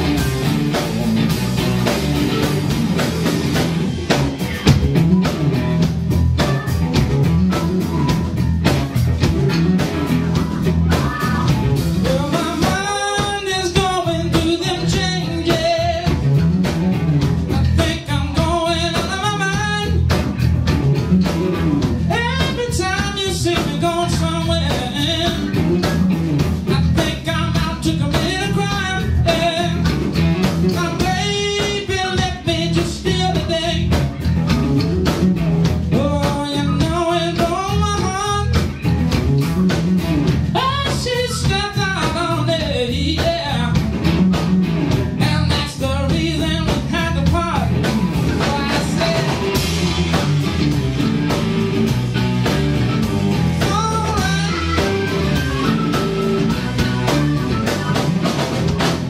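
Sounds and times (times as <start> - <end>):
blues-rock band playing: 0.0 - 59.0
person singing: 10.0 - 16.2, 35.9 - 38.6, 45.2 - 50.3, 53.6 - 58.4.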